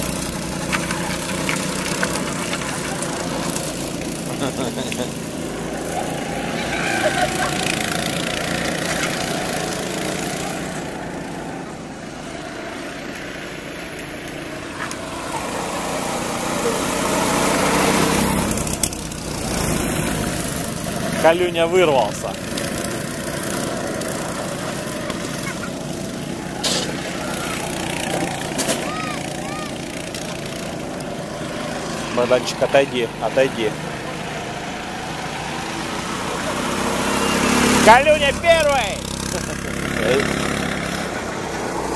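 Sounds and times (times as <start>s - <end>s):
go-kart engines passing: 0.0s - 41.9s.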